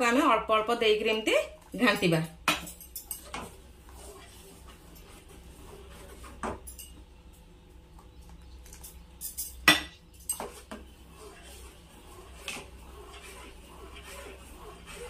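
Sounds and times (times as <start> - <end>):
spoon clinking and scraping a pan: 2.5 - 5.1, 6.3 - 7.0, 8.8 - 15.0.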